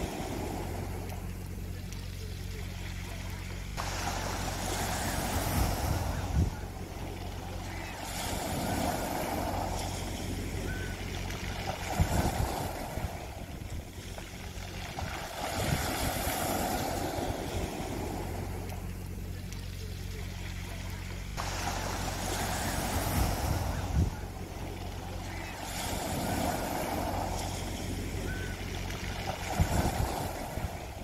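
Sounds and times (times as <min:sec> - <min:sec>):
steady low hum: 0:00.0 - 0:31.0
waves washing over pebbles: 0:00.0 - 0:31.0.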